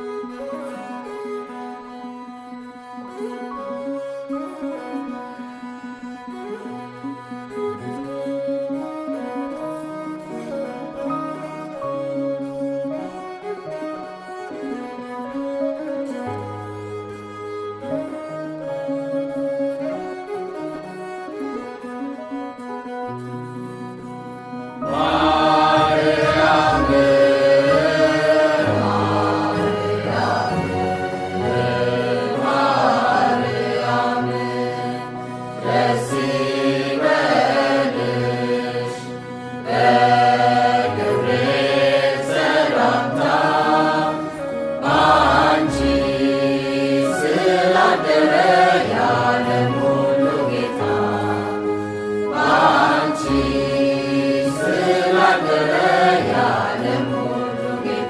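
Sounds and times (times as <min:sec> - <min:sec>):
low steady accompaniment: 0:00.0 - 0:58.0
person singing a chant-like hymn: 0:24.8 - 0:58.0.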